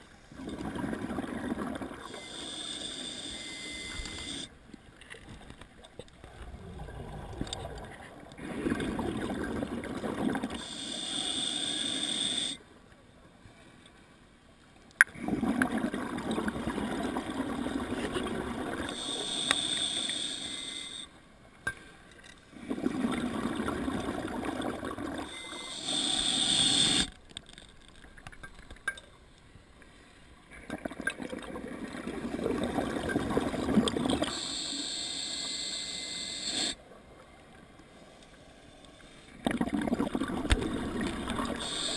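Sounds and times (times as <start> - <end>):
diver breathing through regulator: 2.1 - 4.5, 10.5 - 12.6, 18.9 - 21.1, 25.4 - 27.1, 34.2 - 36.8, 41.4 - 41.9.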